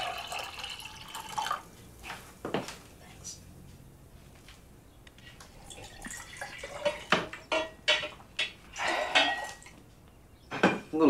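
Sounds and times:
liquid pouring into glass jar: 0.0 - 1.6, 5.5 - 7.3
dripping: 5.3 - 9.8.

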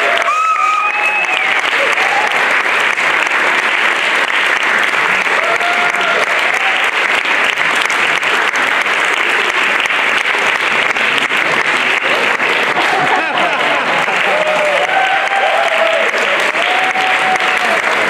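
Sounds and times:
audience applauding: 0.0 - 18.0
single voice cheering: 14.2 - 18.0.

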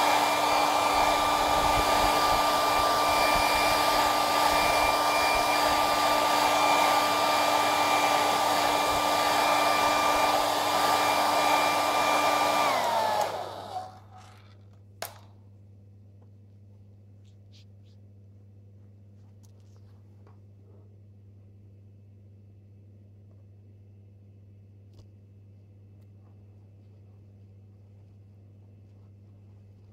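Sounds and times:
hot-air blower whining: 0.0 - 14.4.

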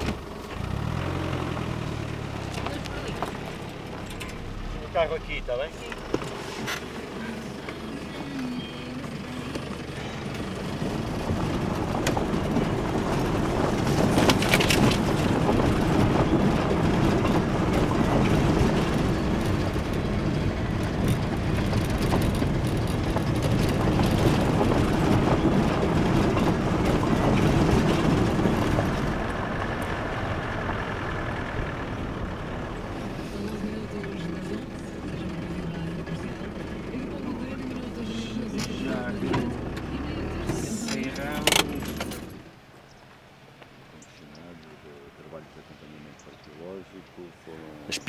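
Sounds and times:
vehicle engine and tyre noise: 0.0 - 48.0
vehicle body knocking and rattling: 8.9 - 37.6.

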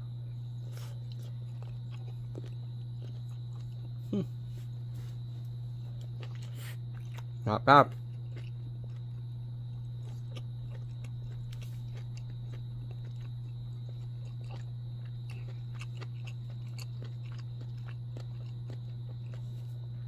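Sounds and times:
steady low hum: 0.0 - 20.0
person chewing: 0.5 - 5.2, 5.8 - 20.0.

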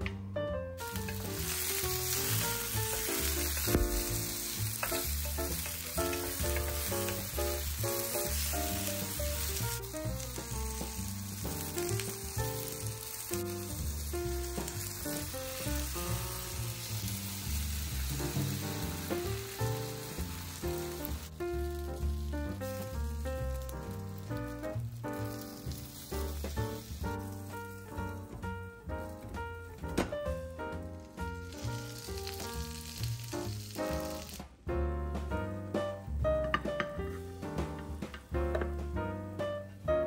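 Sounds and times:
background music: 0.0 - 40.0
vegetables sizzling in oil: 0.8 - 28.4, 30.8 - 34.6
wooden spatula turning food: 0.8 - 34.5.

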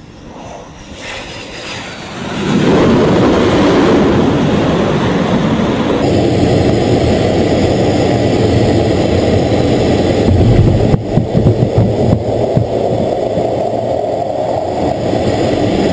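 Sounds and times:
jet engine rumble in cockpit: 0.0 - 15.9
heavy thumps: 10.2 - 12.8.

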